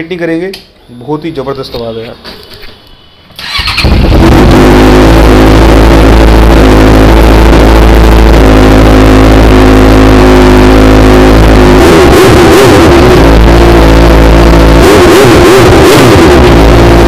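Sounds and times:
motorcycle engine starting and idling: 3.4s - 11.8s.

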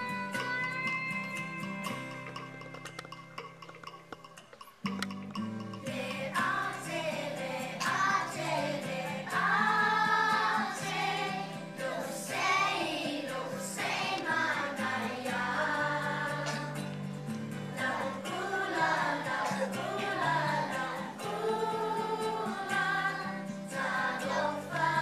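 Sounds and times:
musical backing track: 0.0s - 25.0s
children singing: 5.9s - 25.0s.

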